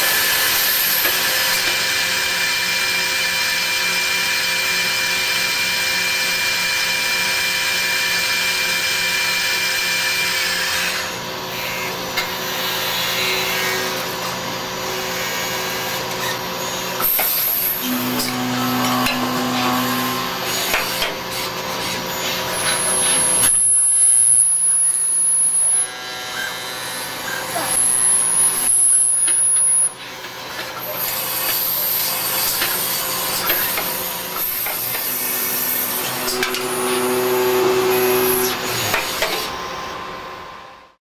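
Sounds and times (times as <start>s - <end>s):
lathe machine hum: 10.5s - 23.4s, 30.0s - 40.8s.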